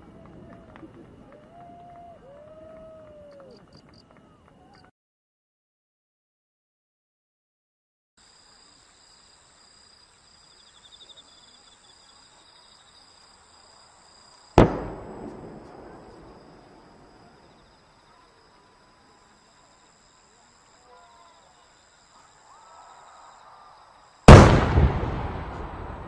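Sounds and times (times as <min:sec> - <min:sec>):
firework bang echoing: 0:14.6 - 0:17.2, 0:24.3 - 0:26.0.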